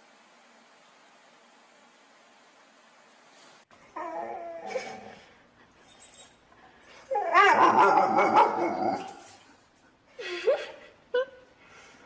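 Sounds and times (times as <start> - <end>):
dog yips and barks: 7.1 - 9.3.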